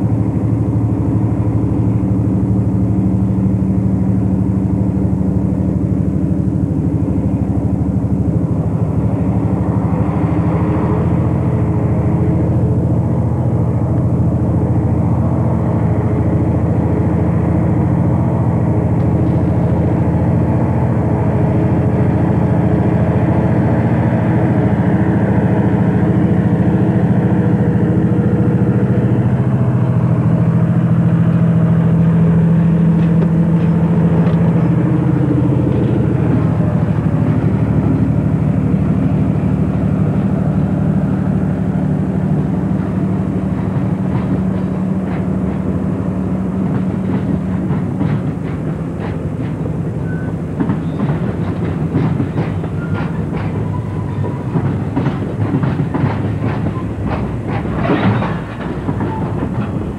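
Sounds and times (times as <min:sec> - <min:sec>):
diesel locomotive engine drone: 0:00.0 - 0:59.9
wheels clicking over rail joints: 0:31.2 - 0:40.8, 0:42.4 - 0:59.9.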